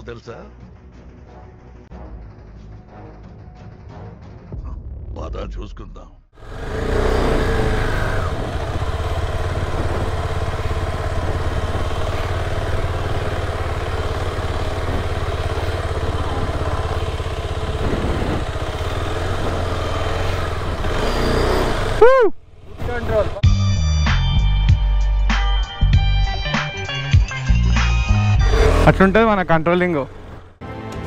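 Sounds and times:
motorcycle engine running low speed: 6.4s - 24.5s, 27.6s - 30.6s.

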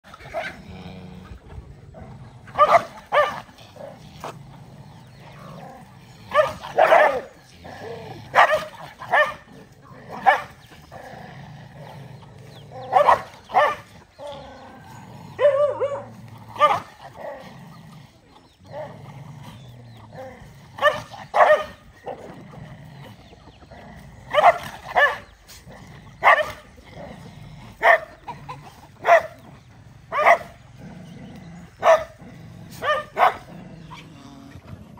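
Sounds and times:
dogs barking: 0.0s - 34.9s.

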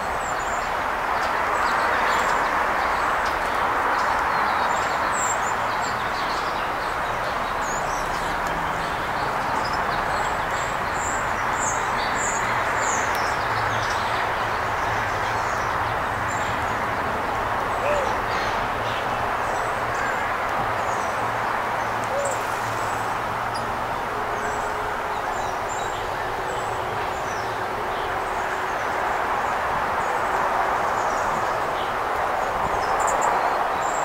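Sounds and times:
small birds chirping: 0.0s - 28.8s.

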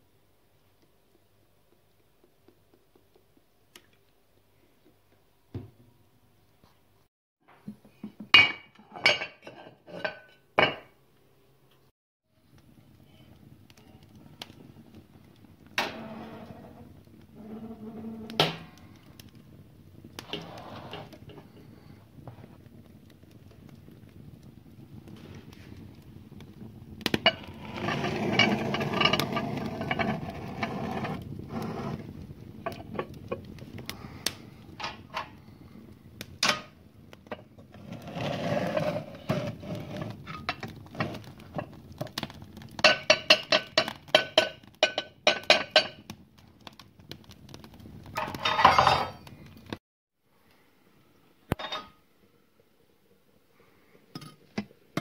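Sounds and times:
iron pot scraping: 8.4s - 10.8s, 15.8s - 19.2s, 20.2s - 21.7s, 27.2s - 33.4s, 37.2s - 46.1s, 48.1s - 49.3s.

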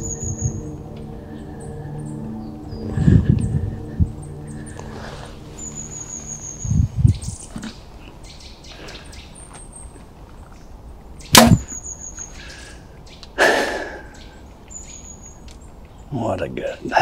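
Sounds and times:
faint bird chirps: 0.0s - 13.4s, 14.0s - 16.9s
arrow rushing noise: 11.4s - 11.8s
bow string crack: 11.4s - 11.8s.

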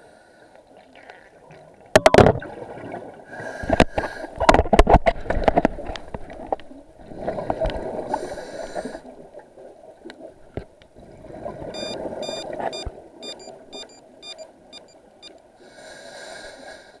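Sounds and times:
water rushing underwater: 0.8s - 3.8s, 5.2s - 15.2s
short high clicking tones: 11.8s - 15.4s.

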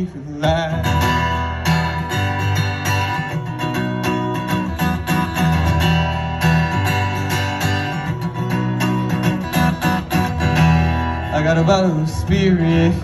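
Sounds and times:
acoustic guitar strumming: 0.0s - 13.0s.

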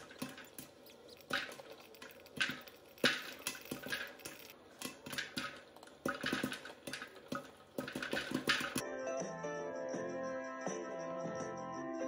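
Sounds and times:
popcorn kernels popping: 0.0s - 8.8s.

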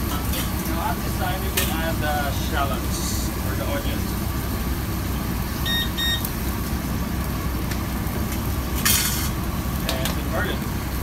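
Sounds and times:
gas range low rumble: 0.0s - 11.0s
electronic appliance beeps: 5.6s - 6.4s.

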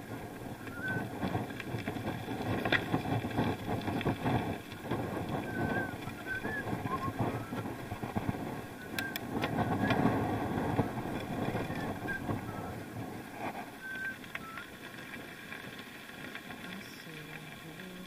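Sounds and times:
bike wheels rumbling: 0.0s - 18.0s
wind on microphone: 0.0s - 18.0s.

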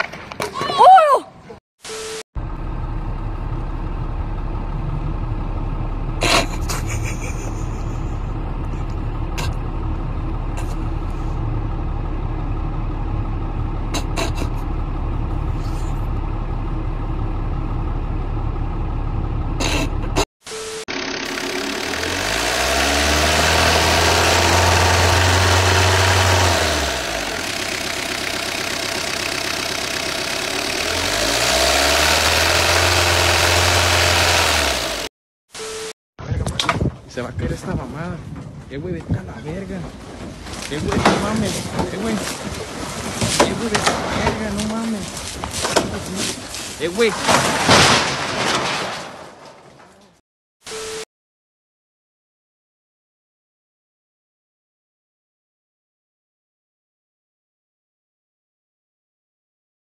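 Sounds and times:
low engine rumble: 2.4s - 20.3s, 20.9s - 31.6s
car engine revving: 20.9s - 35.1s.

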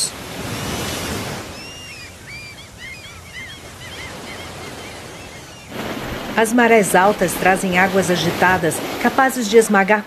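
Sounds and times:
surf washing over rocks: 5.7s - 10.0s.

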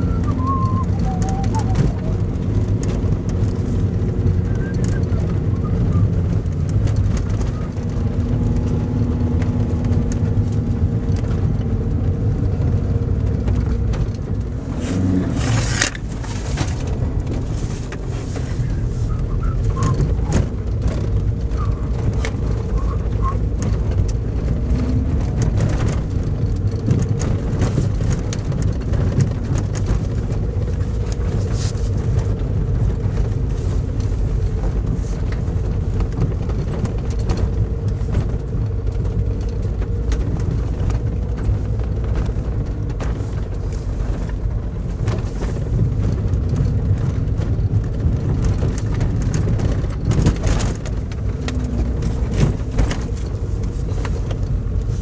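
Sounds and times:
car engine and tyre rumble: 0.0s - 55.0s
knocks and rattles: 0.2s - 55.0s.

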